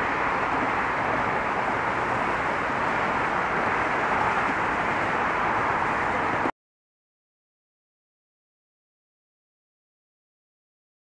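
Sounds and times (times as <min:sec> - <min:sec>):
road traffic noise: 0:00.0 - 0:06.5.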